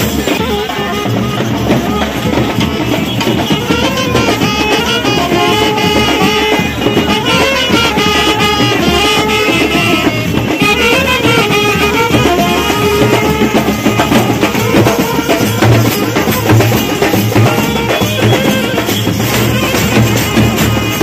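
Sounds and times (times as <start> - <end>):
folk music with drumming: 0.0 - 21.0.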